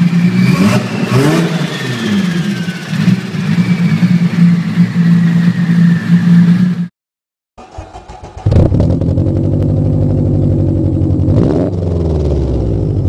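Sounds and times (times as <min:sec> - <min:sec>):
car engine idling: 0:07.6 - 0:13.0.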